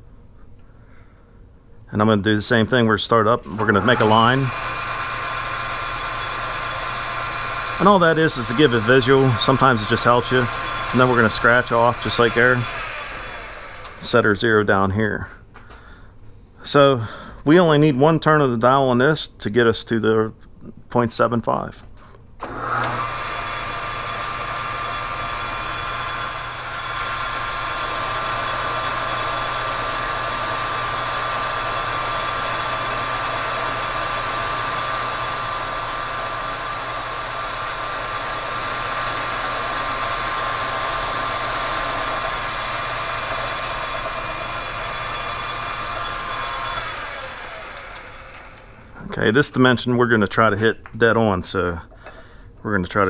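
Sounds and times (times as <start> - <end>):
metal lathe running: 3.5 - 14.2, 22.4 - 48.8.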